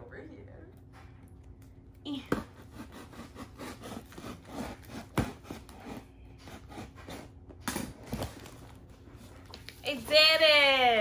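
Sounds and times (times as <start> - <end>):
knife cutting cardboard: 2.3 - 8.2.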